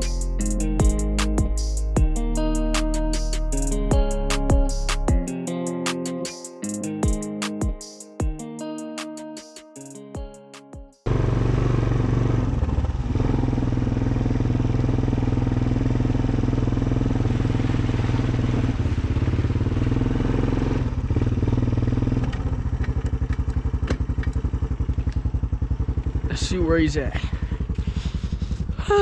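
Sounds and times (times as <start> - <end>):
atv engine running: 11.1 - 29.0.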